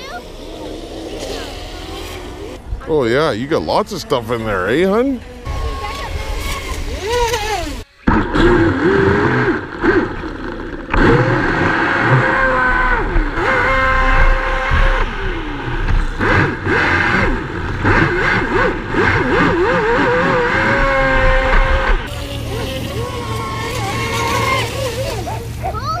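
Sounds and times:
electric boat motor whining: 5.4s - 26.0s.

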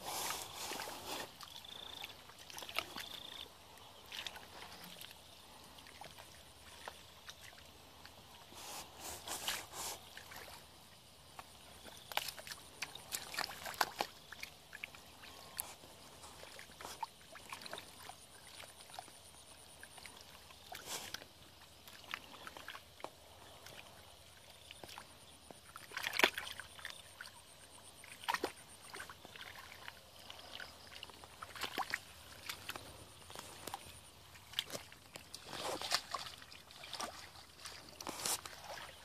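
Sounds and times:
hands sloshing in muddy water: 0.0s - 39.0s.

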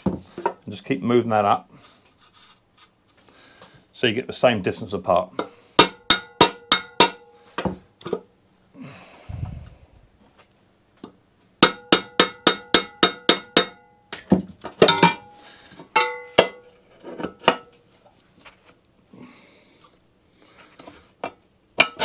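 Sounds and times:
mallet tapping metal: 5.8s - 7.2s, 11.6s - 14.3s.

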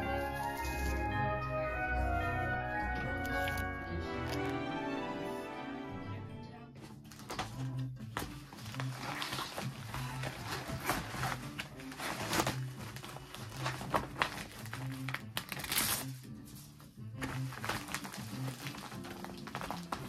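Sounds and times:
soft background music: 0.0s - 20.0s
plastic mailer crinkling: 8.4s - 16.2s, 17.2s - 20.0s.

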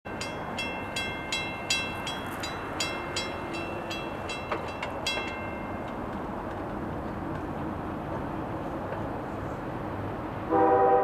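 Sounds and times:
crossing warning bell ringing: 0.1s - 6.3s.

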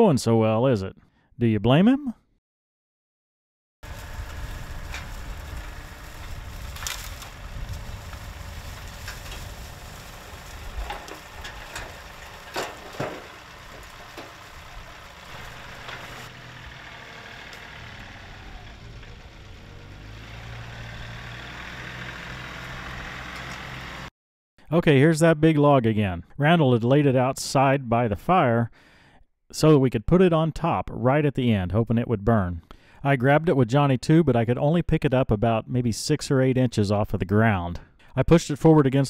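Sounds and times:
tractor diesel engine running: 3.8s - 24.1s
branches cracking and snapping: 3.9s - 19.3s.

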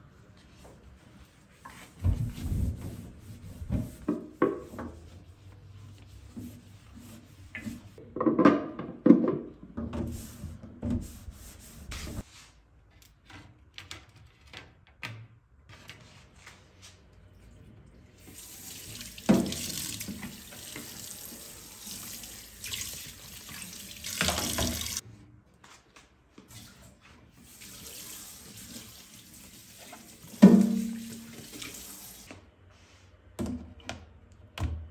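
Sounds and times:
tap running into sink: 19.2s - 21.0s.

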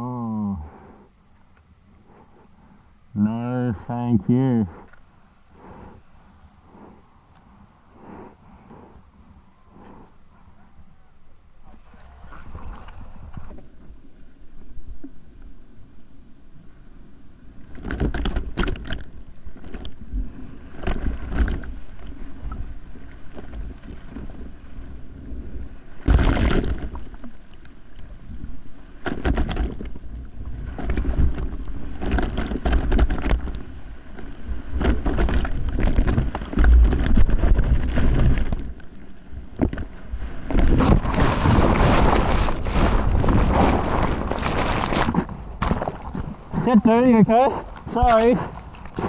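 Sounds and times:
ocean water rushing and splashing: 40.0s - 49.0s
wind buffeting microphone: 40.5s - 49.0s.

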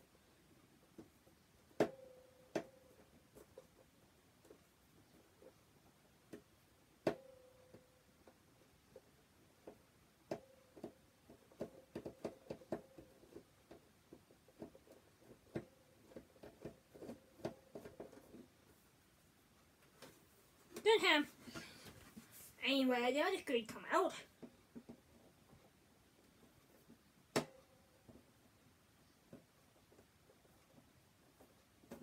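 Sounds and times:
faint steady tone: 0.0s - 3.8s, 6.6s - 13.8s.

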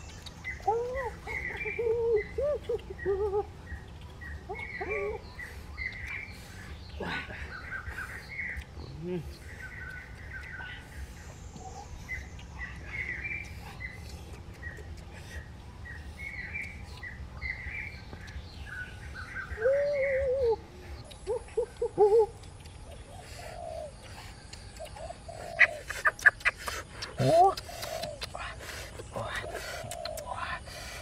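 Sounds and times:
wild birds chirping: 0.0s - 31.0s
low wavering bird call: 19.2s - 22.4s.

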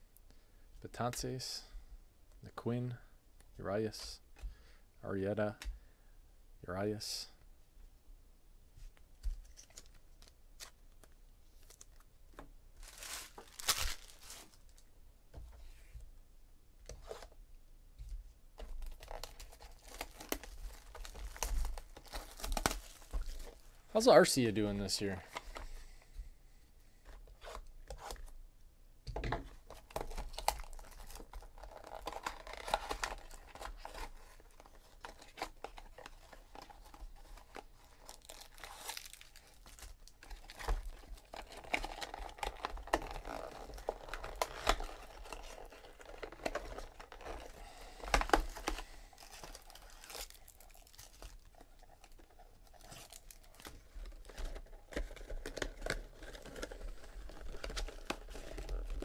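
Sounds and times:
foil packs crinkling and clicking: 12.8s - 14.8s, 18.6s - 23.6s, 29.7s - 59.0s
wrapper tearing and crinkling: 12.8s - 14.8s, 18.8s - 23.6s, 29.7s - 59.0s.

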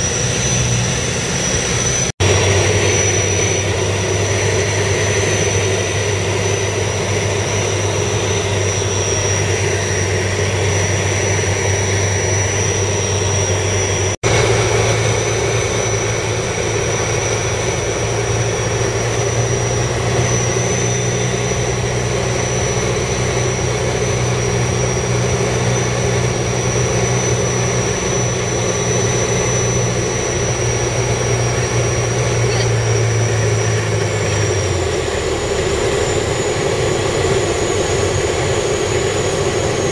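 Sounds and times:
light aircraft engine droning: 0.0s - 39.9s.

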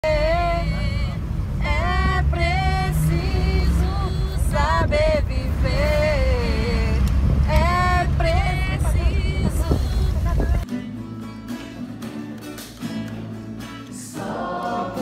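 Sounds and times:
woman singing: 0.0s - 10.6s
moving bus rumble: 0.0s - 10.7s.

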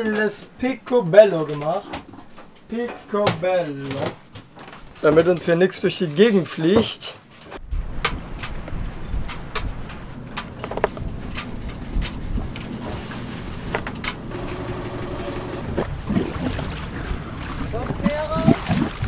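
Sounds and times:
sharp clicks and knocks: 7.5s - 15.9s
boat engine idling: 9.8s - 19.0s.

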